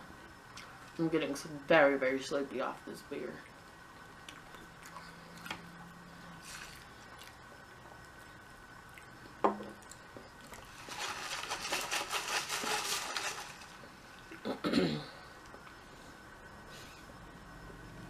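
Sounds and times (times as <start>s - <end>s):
drink fizzing and crackling: 6.4s - 14.5s.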